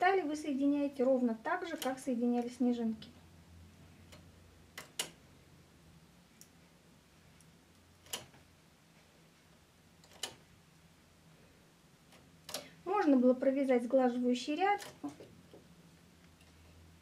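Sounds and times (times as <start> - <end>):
low steady hum: 0.0 - 17.0
knitting machine needles clicking: 1.1 - 3.2, 4.0 - 5.2, 7.8 - 8.5, 10.0 - 10.5, 12.1 - 13.2, 14.7 - 15.7.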